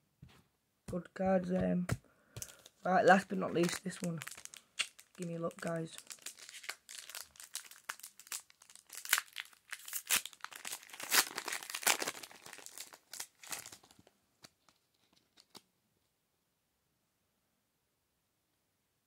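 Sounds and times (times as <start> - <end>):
foil wrapper tearing and crinkling: 2.4 - 15.6.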